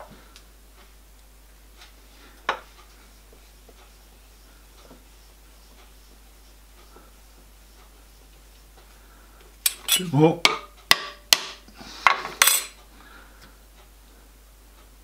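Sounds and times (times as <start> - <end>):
hammer tapping steel: 9.6 - 11.7.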